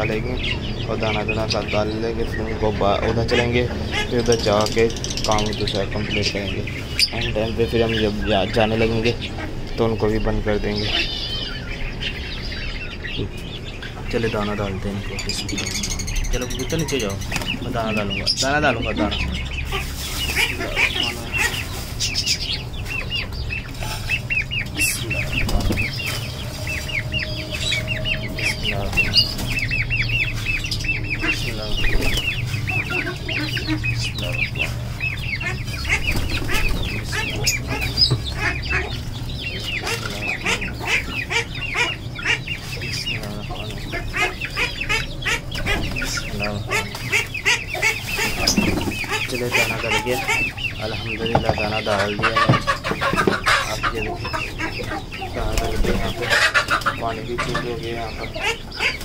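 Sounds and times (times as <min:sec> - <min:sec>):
chickens clucking: 0:00.0 - 0:59.0
chicks cheeping: 0:00.0 - 0:59.0
wings flapping: 0:17.2 - 0:17.7, 0:25.2 - 0:26.3, 0:31.6 - 0:32.6, 0:35.8 - 0:38.1, 0:47.9 - 0:50.3.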